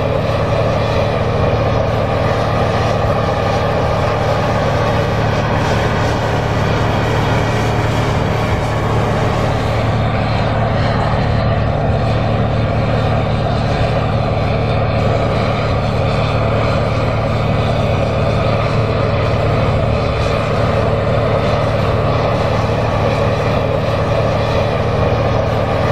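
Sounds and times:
tractor diesel engine droning: 0:00.0 - 0:25.9.

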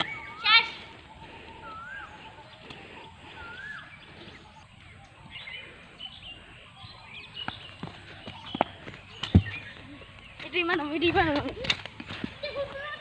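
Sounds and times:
bird whistling: 0:00.0 - 0:05.6
high bird chirps: 0:00.0 - 0:10.8.

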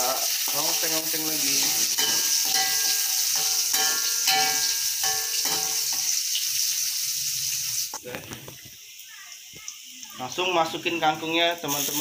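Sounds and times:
food sizzling in hot oil: 0:00.0 - 0:12.0
metal spatula scraping wok: 0:00.4 - 0:06.7.

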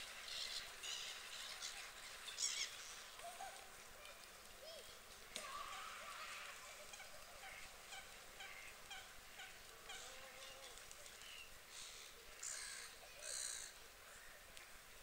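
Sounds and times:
waterbirds calling: 0:00.0 - 0:14.9.

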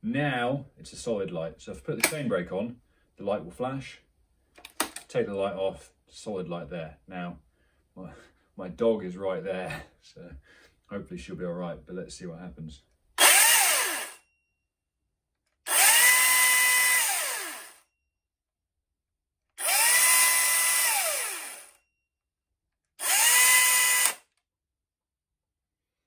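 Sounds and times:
electric chainsaw whining: 0:13.2 - 0:14.2, 0:15.7 - 0:17.8, 0:19.6 - 0:21.8, 0:23.0 - 0:24.4.

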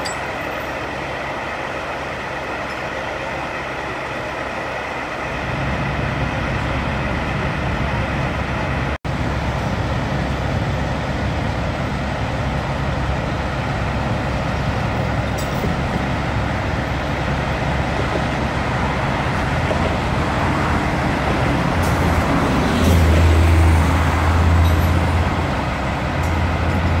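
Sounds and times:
diesel engines running: 0:00.0 - 0:27.0
road traffic: 0:00.0 - 0:27.0.

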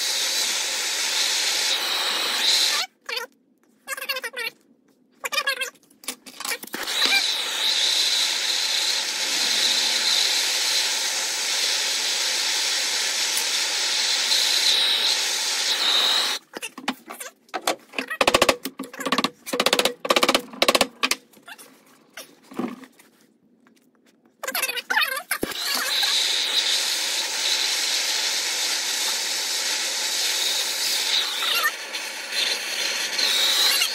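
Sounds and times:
gas torch flame hissing: 0:00.0 - 0:02.8, 0:06.8 - 0:16.4, 0:25.4 - 0:33.9.

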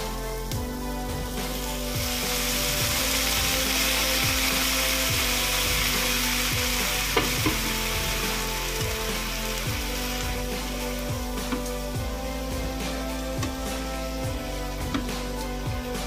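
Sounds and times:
loud steady sizzle: 0:00.0 - 0:16.0
water splashing into frying pan: 0:01.8 - 0:11.9.

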